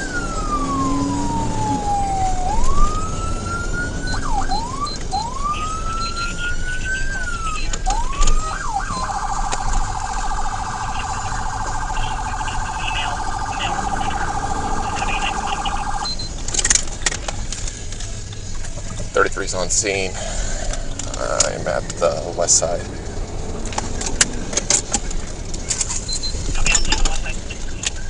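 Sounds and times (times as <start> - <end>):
police siren wailing and yelping: 0.0 - 16.4
engine and road rumble: 0.0 - 28.0.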